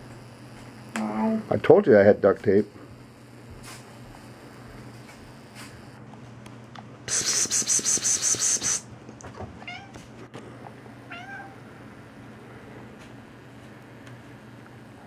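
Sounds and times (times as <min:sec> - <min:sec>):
cat meowing: 0:09.6 - 0:10.0, 0:11.1 - 0:11.6.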